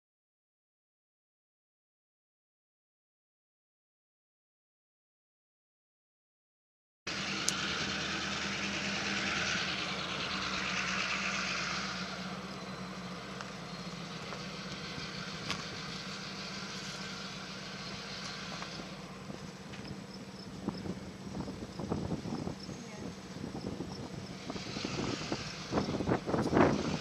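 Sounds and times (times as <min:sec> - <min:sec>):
engine idling: 0:07.1 - 0:27.0.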